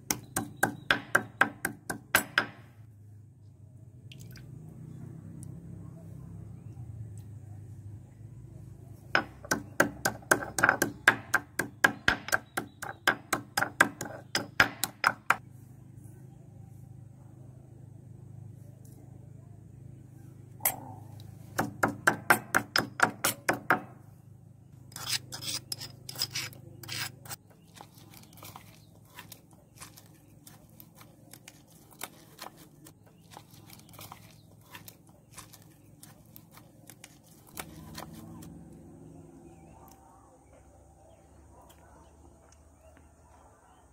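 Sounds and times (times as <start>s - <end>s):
pestle pounding in stone mortar: 0.0s - 2.6s, 9.2s - 15.4s, 21.6s - 23.9s.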